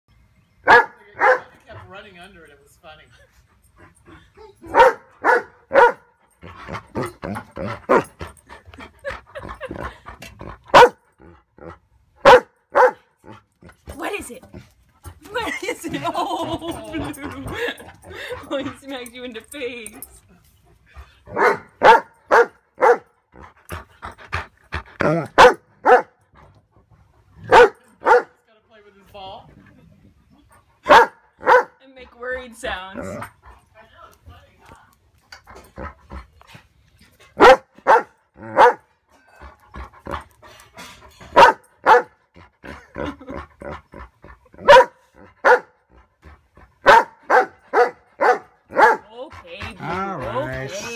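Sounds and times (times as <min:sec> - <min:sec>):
dog barking: 0:00.7 - 0:01.5, 0:04.7 - 0:06.1, 0:10.7 - 0:11.0, 0:12.2 - 0:13.1, 0:21.3 - 0:23.1, 0:25.4 - 0:26.2, 0:27.5 - 0:28.3, 0:30.9 - 0:31.8, 0:37.4 - 0:38.8, 0:41.3 - 0:42.2, 0:44.6 - 0:45.8, 0:46.8 - 0:49.1.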